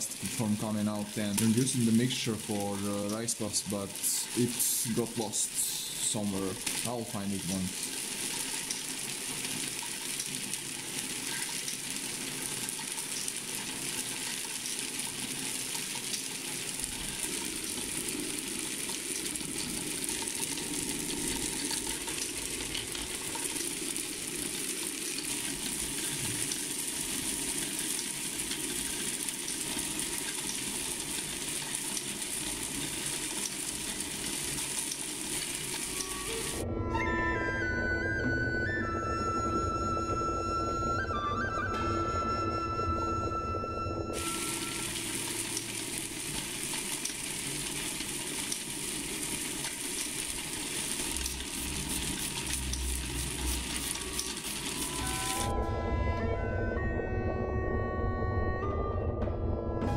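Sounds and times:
rice puffs rattling in rotating drum: 0.0 - 36.6, 44.2 - 55.5.

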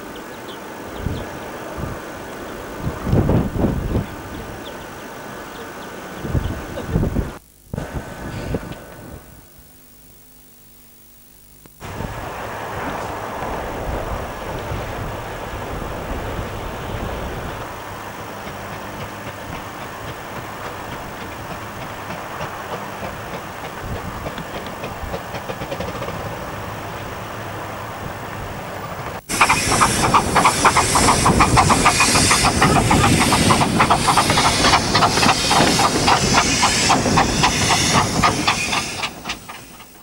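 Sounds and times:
distant steam train rumble: 0.0 - 9.3, 11.8 - 40.0
steam train exhaust chuffs: 11.8 - 40.0
train wheel clatter: 12.1 - 27.2, 28.3 - 40.0
steam hiss: 29.3 - 40.0.

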